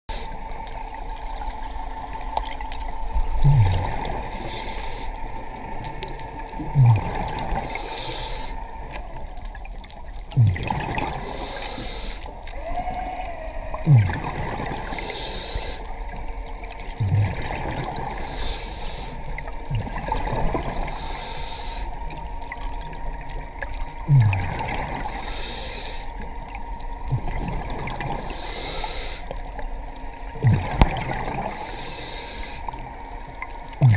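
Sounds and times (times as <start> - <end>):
regulator hiss on inhale: 0.1 - 0.6, 3.9 - 5.6, 7.4 - 9.0, 11.1 - 12.5, 14.8 - 16.2, 18.0 - 19.6, 20.8 - 22.2, 25.0 - 26.3, 28.1 - 29.6, 31.4 - 33.0
bubbles gurgling: 0.6 - 4.5, 5.4 - 7.9, 8.7 - 11.9, 12.5 - 18.5, 19.3 - 21.1, 22.2 - 25.3, 26.2 - 28.6, 29.4 - 31.7, 32.7 - 33.9.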